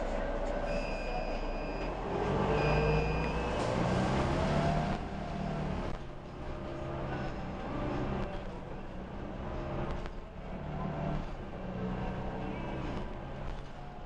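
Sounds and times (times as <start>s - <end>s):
bus engine and road rumble: 0.0s - 14.0s
steady beeps: 0.7s - 3.6s.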